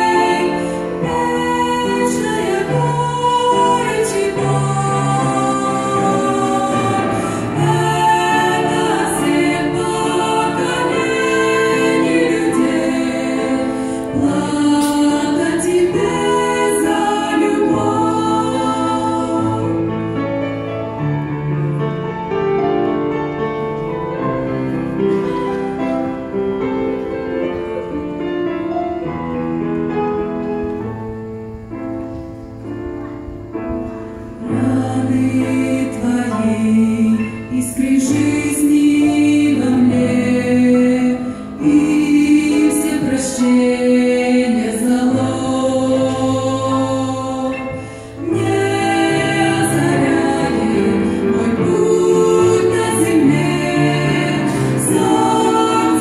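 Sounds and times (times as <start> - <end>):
women singing in harmony: 0.0 - 21.1, 34.2 - 56.0.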